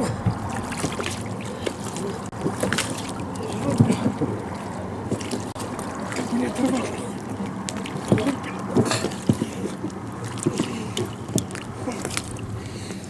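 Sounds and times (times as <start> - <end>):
knocks against boat and motor: 0.0 - 4.2, 7.7 - 12.2
water sloshing and splashing: 0.0 - 13.0.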